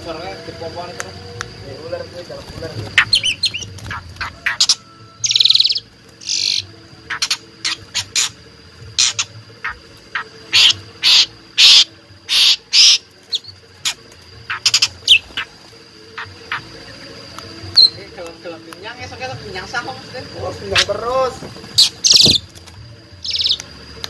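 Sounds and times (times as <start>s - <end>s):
starling chattering calls: 2.0s - 17.0s, 19.0s - 22.6s, 23.2s - 23.6s.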